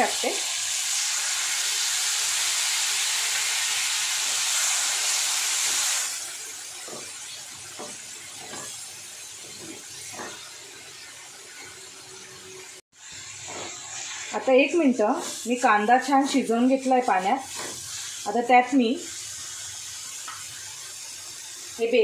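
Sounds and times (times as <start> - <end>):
water sizzling in hot pan: 0.0 - 22.0
wooden spatula scraping: 13.0 - 18.2.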